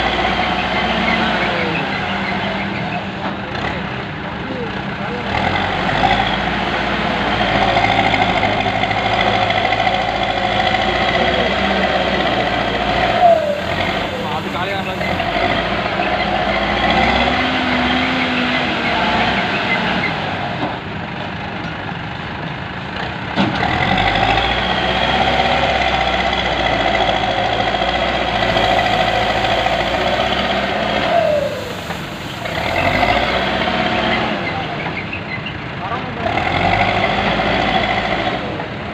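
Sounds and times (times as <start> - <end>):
backhoe diesel engine and hydraulics: 0.0 - 38.9.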